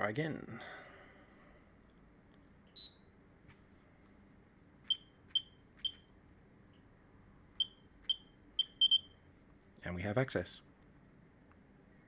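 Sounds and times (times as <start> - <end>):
short electronic beeps: 2.8 - 3.1, 4.9 - 6.1, 7.6 - 9.2.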